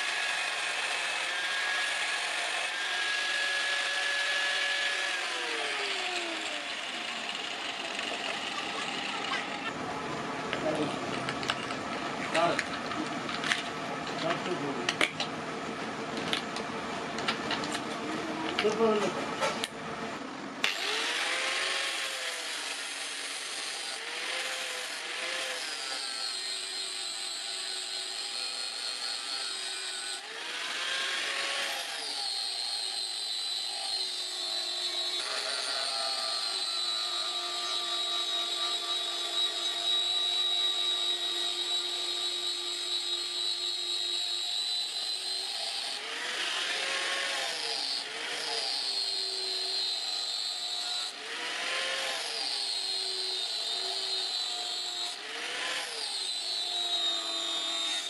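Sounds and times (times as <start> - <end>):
angle grinder grinding steel: 0.0 - 9.8, 20.6 - 58.0.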